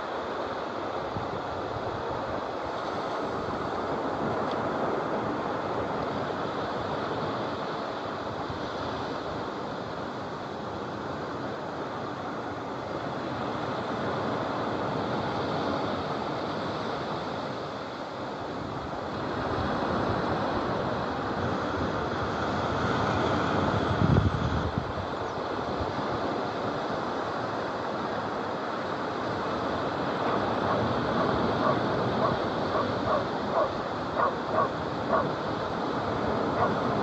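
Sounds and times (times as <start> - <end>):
surf breaking on shore: 0.0 - 37.0
wind buffeting microphone: 18.5 - 26.9, 29.2 - 37.0.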